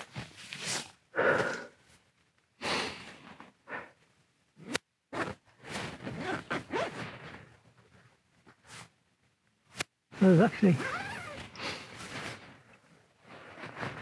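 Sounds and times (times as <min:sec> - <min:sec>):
tent fabric rustling: 0:00.0 - 0:01.1, 0:05.1 - 0:09.0, 0:09.7 - 0:14.0.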